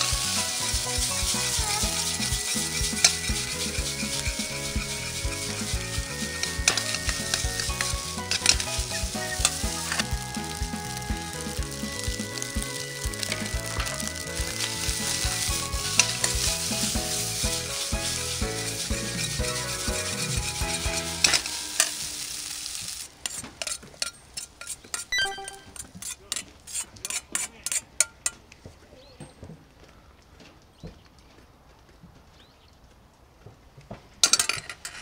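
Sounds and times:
metal ladle clinking and scraping: 0.0 - 10.0, 23.2 - 28.4
background music: 0.0 - 22.9, 25.2 - 25.8
rice sizzling in a wok: 0.0 - 25.1.

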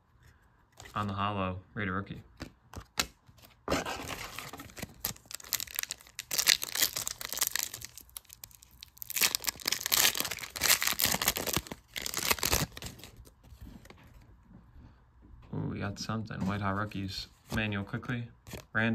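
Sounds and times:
foil wrapper crinkling and tearing: 3.8 - 13.3.

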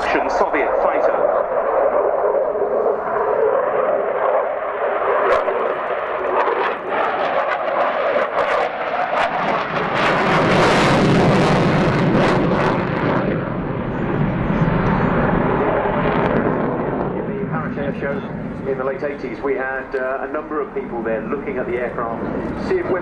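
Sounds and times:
jet engines in flight: 0.0 - 23.0.

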